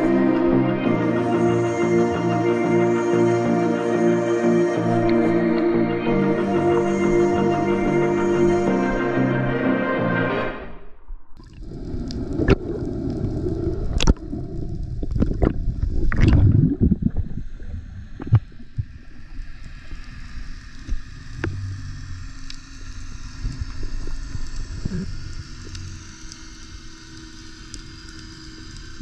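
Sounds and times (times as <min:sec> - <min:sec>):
water gurgling underwater: 0:11.0 - 0:19.1.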